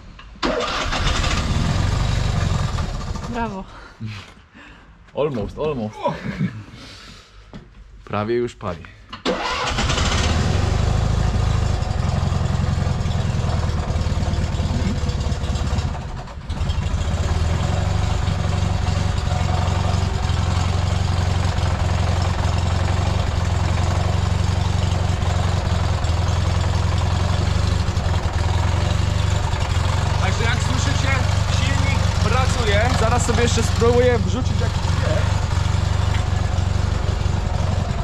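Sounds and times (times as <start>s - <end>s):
car engine idling: 0.6s - 3.6s, 9.4s - 38.0s.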